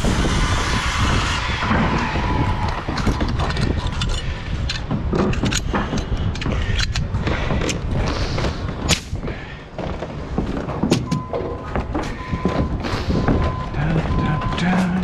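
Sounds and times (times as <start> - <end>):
steady low rumble: 0.0 - 15.0
steady electronic beep: 11.1 - 15.0.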